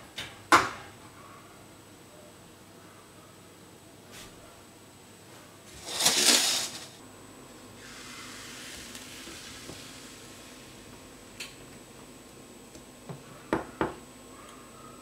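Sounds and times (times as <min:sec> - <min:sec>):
batter sizzling in frying pan: 0:07.8 - 0:10.8.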